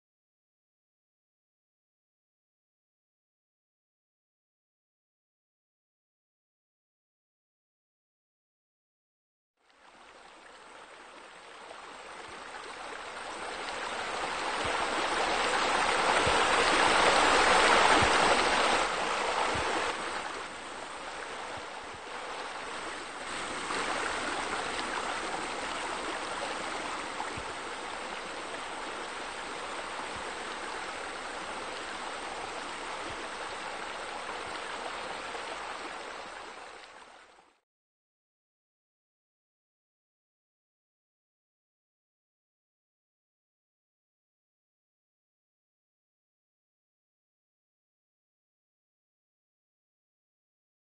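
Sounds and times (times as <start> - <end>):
water splashing from waterfall: 11.7 - 37.4.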